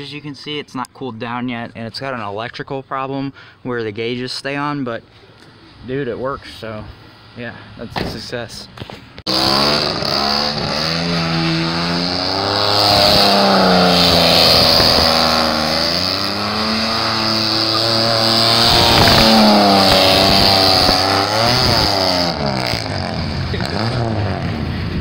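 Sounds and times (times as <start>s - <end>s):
truck engine revving: 9.2s - 25.0s
tires squealing on pavement: 9.3s - 24.8s.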